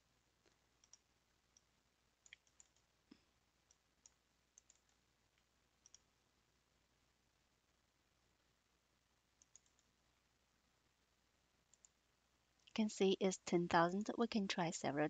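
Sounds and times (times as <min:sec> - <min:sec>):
computer mouse clicks: 0:00.5 - 0:02.9, 0:03.6 - 0:06.1, 0:09.4 - 0:09.9, 0:11.7 - 0:12.0.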